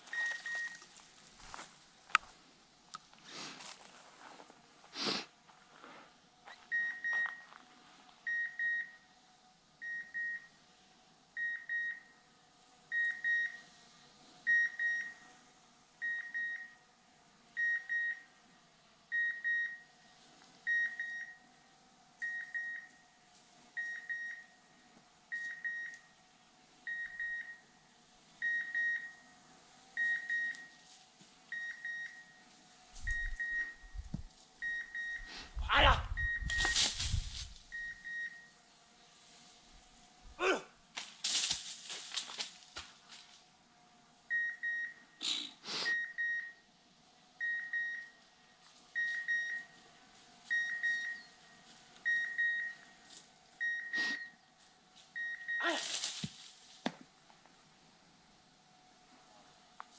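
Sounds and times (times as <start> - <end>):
short high beeps: 36.1 - 36.9.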